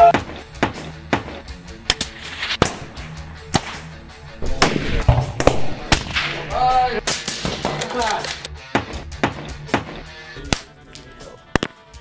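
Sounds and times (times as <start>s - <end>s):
background music with bass line: 0.0s - 12.0s
rifle shots: 2.0s - 6.4s.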